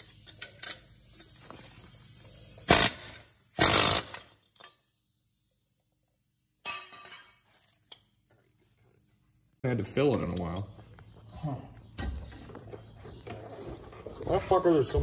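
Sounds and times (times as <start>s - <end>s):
pneumatic air hammer bursts: 0.0s - 4.8s.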